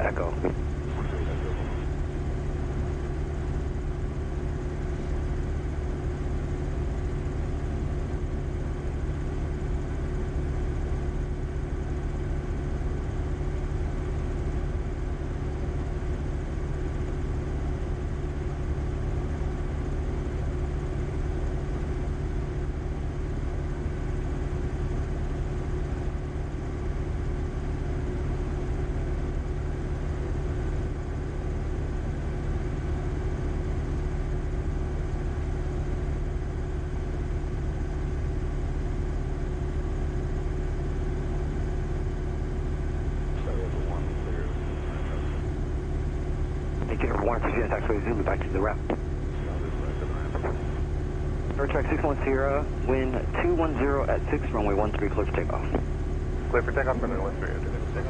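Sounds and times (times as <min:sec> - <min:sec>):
airplane piston engine idling: 0:00.0 - 0:11.8, 0:41.2 - 0:58.0.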